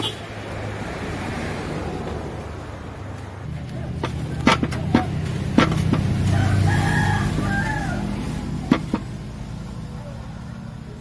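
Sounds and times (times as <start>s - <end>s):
wooden pole pounding in metal drum: 3.5s - 9.3s
rooster crowing: 6.2s - 8.7s.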